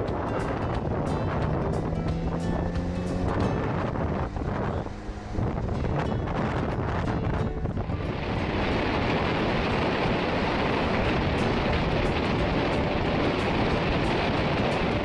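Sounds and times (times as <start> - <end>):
car engine and road noise: 0.0 - 15.0
wind buffeting microphone: 0.0 - 15.0.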